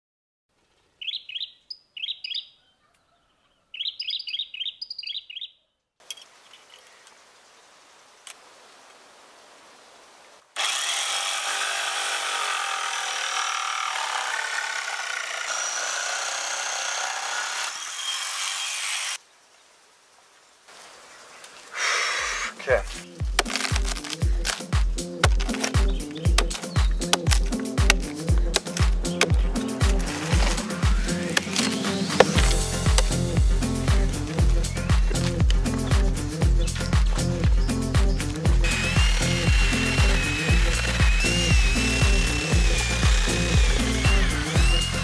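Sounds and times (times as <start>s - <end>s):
bird chirping: 0.6s - 7.8s, 25.4s - 31.4s, 34.3s - 39.7s
electric jigsaw cutting wood: 10.6s - 19.2s, 23.6s - 24.6s, 27.3s - 33.2s, 38.6s - 45.0s.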